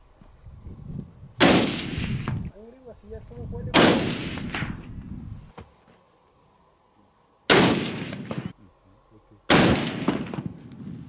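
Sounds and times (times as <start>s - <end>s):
rifle shots with rolling echo: 1.4s - 2.3s, 3.7s - 4.9s, 7.5s - 8.6s, 9.5s - 10.7s.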